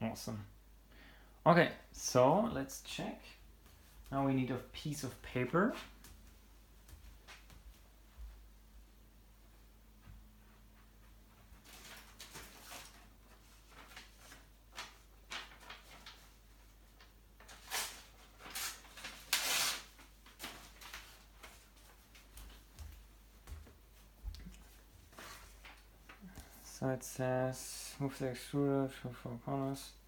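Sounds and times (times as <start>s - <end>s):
paper rustling: 11.6s - 23.6s, 24.4s - 26.6s.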